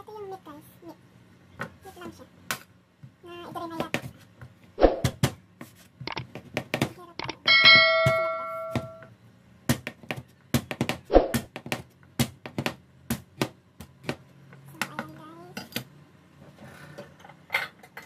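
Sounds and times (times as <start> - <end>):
bright chime: 7.5 - 9.0.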